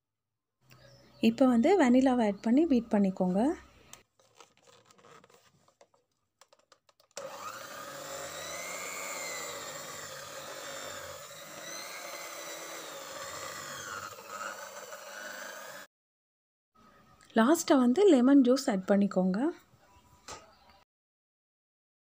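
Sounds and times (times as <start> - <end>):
electric hand mixer running: 7.0 - 15.9.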